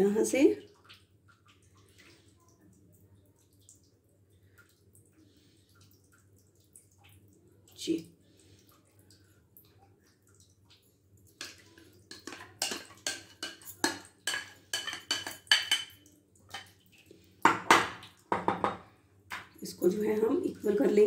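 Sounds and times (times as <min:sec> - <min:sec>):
spoon scraping a bowl: 0:11.4 - 0:15.9.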